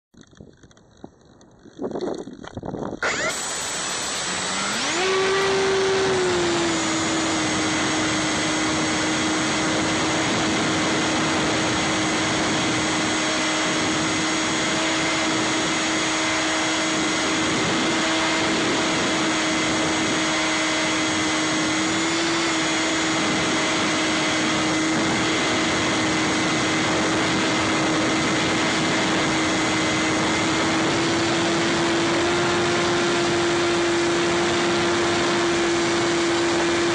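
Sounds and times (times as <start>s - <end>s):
electric motor propeller whine: 0.2s - 36.9s
rush of air: 1.9s - 16.1s.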